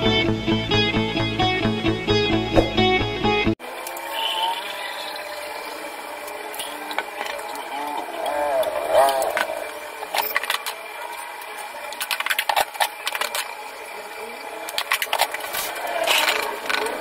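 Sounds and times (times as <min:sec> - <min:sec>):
plastic cups clicking and knocking: 0:06.2 - 0:13.6, 0:14.6 - 0:17.0.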